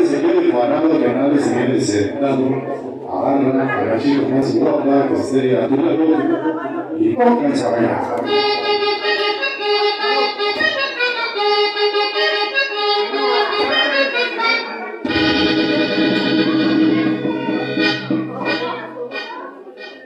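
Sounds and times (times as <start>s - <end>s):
accordion melody: 8.2s - 20.0s
bass music: 15.1s - 19.4s.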